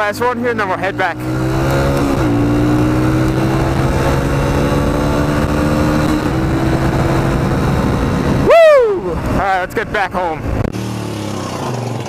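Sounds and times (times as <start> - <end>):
motorcycle engine accelerating: 0.0 - 12.0
wind noise: 1.2 - 10.8.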